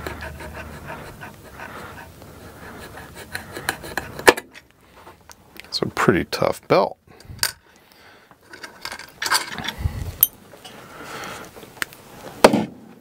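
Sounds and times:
handling clicks and rustling: 7.2s - 10.8s.

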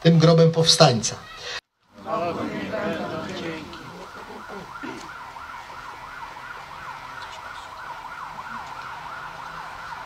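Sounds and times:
siren yelping: 2.3s - 10.0s.

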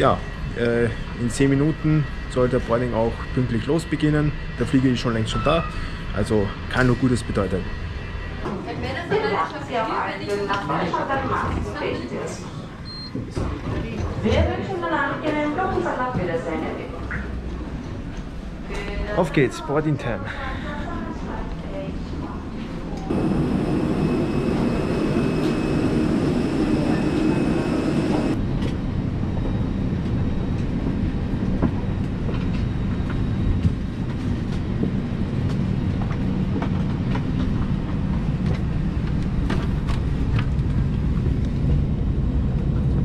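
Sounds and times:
parked airplane rumble and hiss: 20.3s - 43.0s
thin high whine: 23.1s - 28.4s.

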